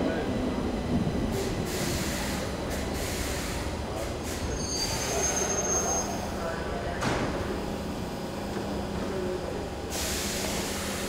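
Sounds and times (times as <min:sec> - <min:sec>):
train wheels and motors rumbling: 0:00.0 - 0:11.0
high thin wheel squeal: 0:04.5 - 0:06.3.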